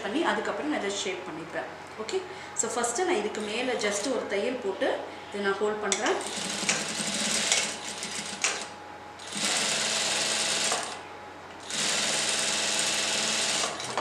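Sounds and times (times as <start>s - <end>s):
sewing machine stitching: 6.2s - 11.0s, 11.6s - 14.0s.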